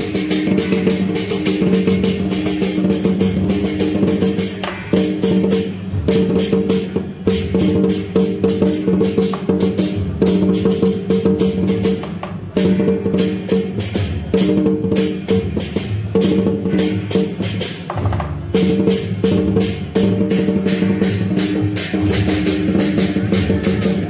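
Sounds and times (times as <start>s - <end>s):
cymbals: 0.0s - 24.0s
drums beating: 0.0s - 24.0s
wood block strikes: 0.0s - 24.0s.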